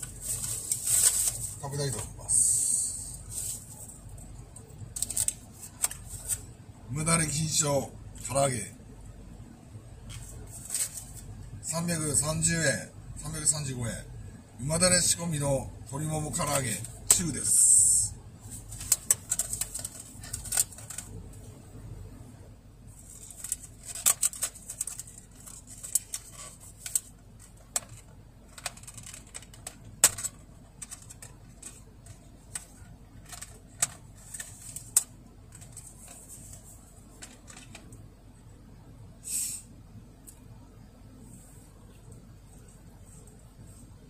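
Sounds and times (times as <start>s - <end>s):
plastic rustling hiss: 0.0s - 1.6s
thin plastic crackling and clicking: 23.2s - 36.2s.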